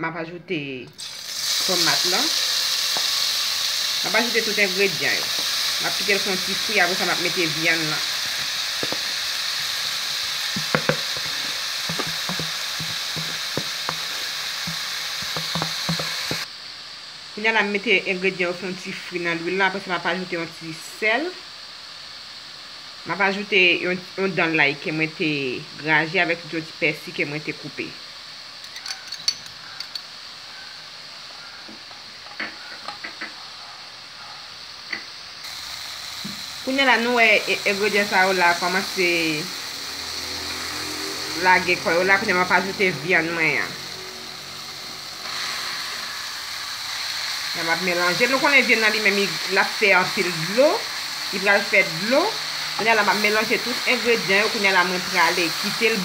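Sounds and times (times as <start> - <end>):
onions and peppers sizzling in oil: 1.0 - 56.0
wooden spoon knocking pot: 8.8 - 9.1, 10.5 - 16.5.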